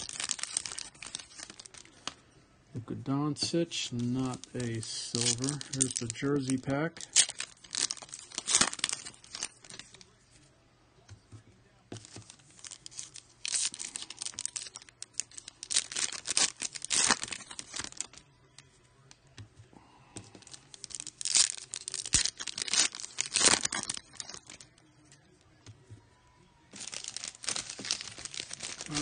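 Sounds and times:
foil wrapper tearing and crinkling: 0.0s - 2.2s, 3.9s - 10.1s, 12.0s - 18.2s, 20.4s - 24.8s, 26.8s - 29.0s.

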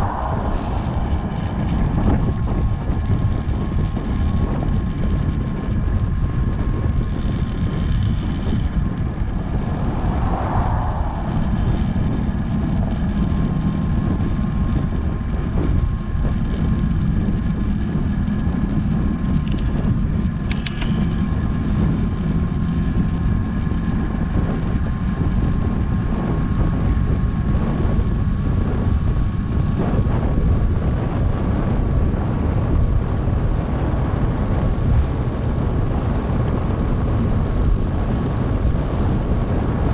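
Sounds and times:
wind rushing over microphone: 0.0s - 39.9s
faint high whine: 8.6s - 13.2s.

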